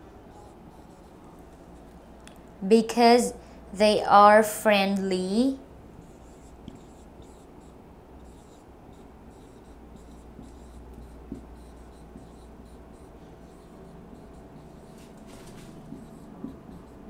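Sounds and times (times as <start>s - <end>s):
marker writing on whiteboard: 0.3s - 1.9s, 6.0s - 17.0s.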